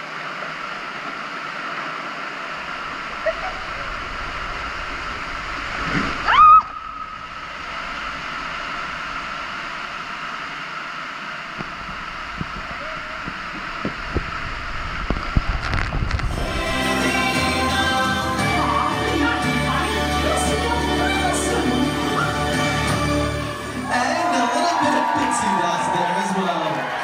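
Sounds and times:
water rushing in a tube: 0.0s - 19.8s
steady high tone: 16.3s - 24.8s.

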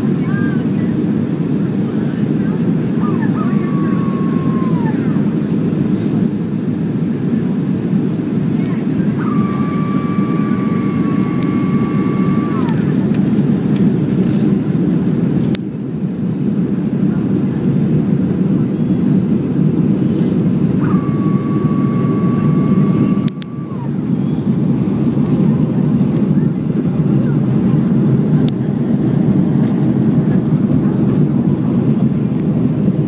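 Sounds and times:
aircraft engines and airflow rumble: 0.0s - 33.0s
thin whine dropping in pitch: 2.9s - 5.4s, 8.6s - 13.2s, 20.6s - 26.5s.

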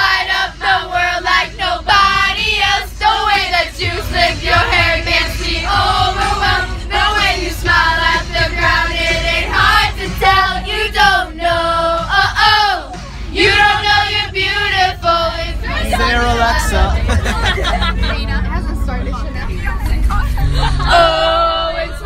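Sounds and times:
group of voices singing loudly: 0.0s - 17.6s
bus engine low rumble: 0.0s - 22.0s.

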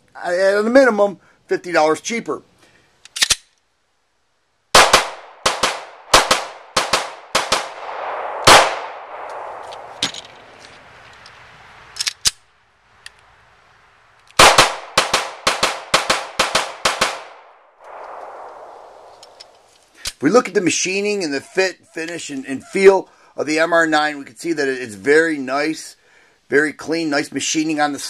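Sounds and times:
pistol shots with echo: 4.8s - 10.0s, 14.4s - 19.1s.

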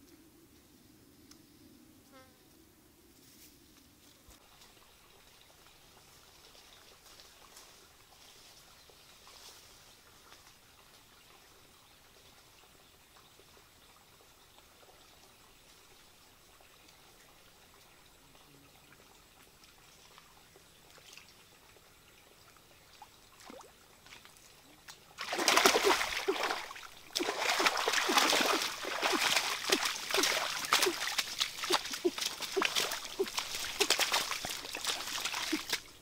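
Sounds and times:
faint forest background: 0.0s - 36.0s
soft steps on wet ground: 23.4s - 36.0s
splashing through muddy water: 23.4s - 36.0s.

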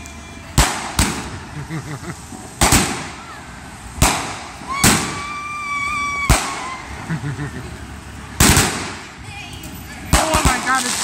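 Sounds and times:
fireworks bangs: 0.4s - 7.1s, 8.3s - 9.2s, 10.0s - 11.0s
firework whistle: 4.0s - 7.0s.

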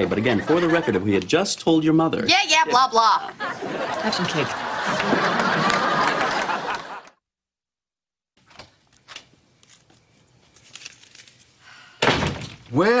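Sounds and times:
audience laughter: 0.2s - 1.1s, 3.2s - 7.2s.

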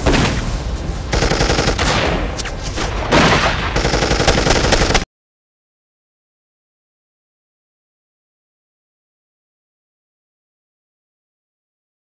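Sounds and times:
machine-gun fire: 1.1s - 5.1s.

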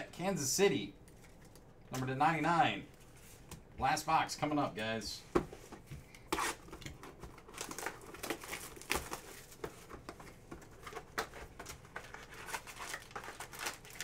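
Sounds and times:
plastic wrap crinkling: 6.4s - 14.0s.

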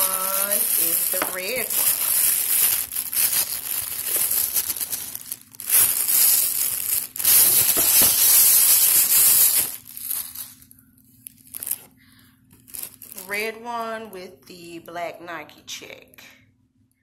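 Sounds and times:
plastic bag crinkling: 0.0s - 13.6s.

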